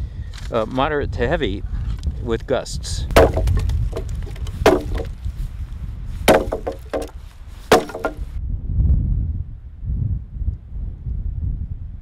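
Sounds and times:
wind rumbling on microphone: 0.0 - 6.3, 8.4 - 12.0
axe chopping log: 3.2 - 5.2, 6.3 - 8.3.

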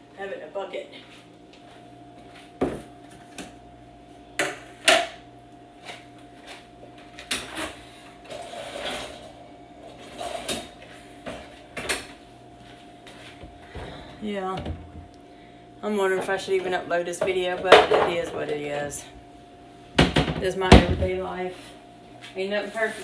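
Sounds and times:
steady hum: 0.0 - 23.0
plastic bucket knocking on counter: 20.0 - 21.1.

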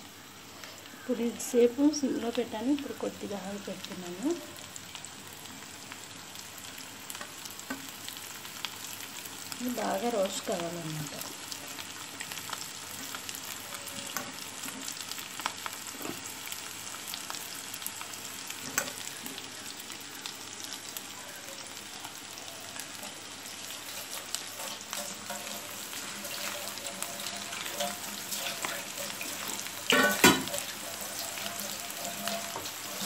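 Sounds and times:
potatoes sizzling in oil: 0.0 - 33.0
small crackles and pops: 3.6 - 33.0.

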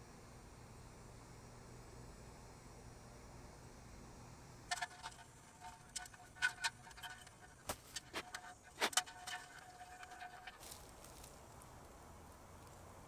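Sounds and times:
metal handles clinking on keg: 4.7 - 10.6.

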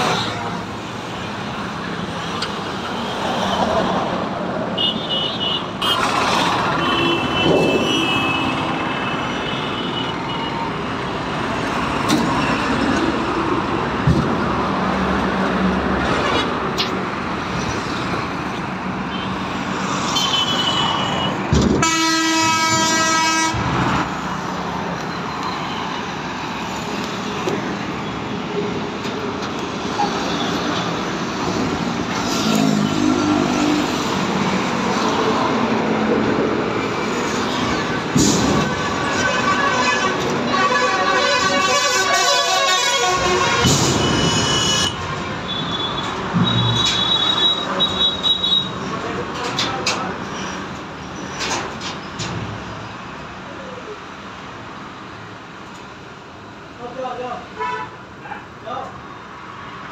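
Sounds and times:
road traffic noise: 0.0 - 59.9
vehicle horn: 20.2 - 23.6, 38.6 - 48.7, 57.6 - 58.0.

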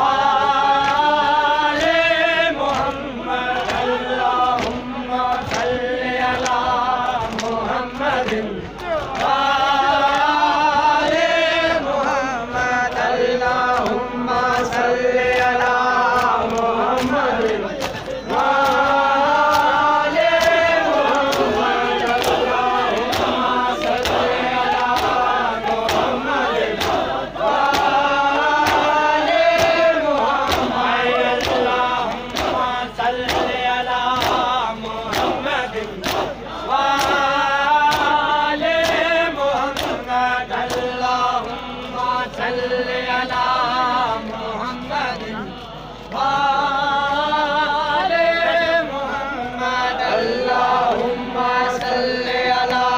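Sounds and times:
crowd of men chanting in unison: 0.0 - 52.9
hands slapping on chests: 2.6 - 10.3, 12.9 - 38.2, 38.8 - 42.4.

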